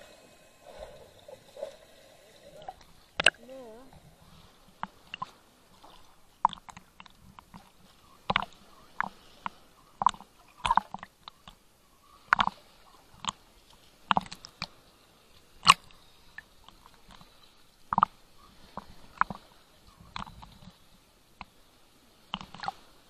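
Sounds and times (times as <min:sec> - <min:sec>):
small waves slapping camera housing: 0:06.4 - 0:09.2, 0:10.0 - 0:11.6, 0:22.3 - 0:22.8.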